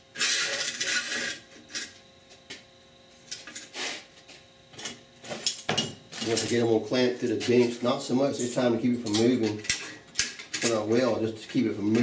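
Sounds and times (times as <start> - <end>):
metal scraping over metal: 0.1 - 1.9
metal tools clanking: 5.4 - 11.0.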